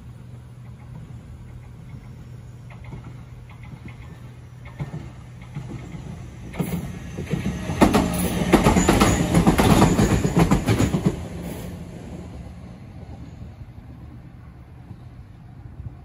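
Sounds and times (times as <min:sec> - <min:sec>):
electric train passing: 0:00.0 - 0:16.0
wheels clattering over rail joints: 0:00.6 - 0:11.4.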